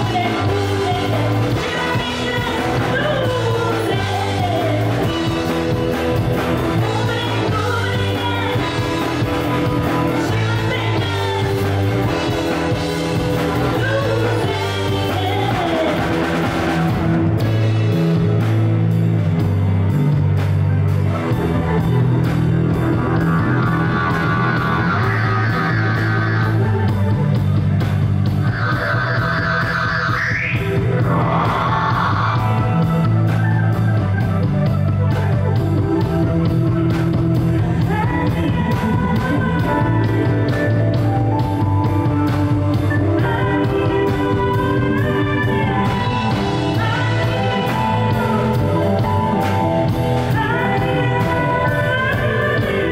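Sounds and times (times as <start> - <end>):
woman singing: 0.0 - 17.6, 32.2 - 52.9
electric guitar lead: 0.0 - 52.9
funk band playing: 0.0 - 52.9.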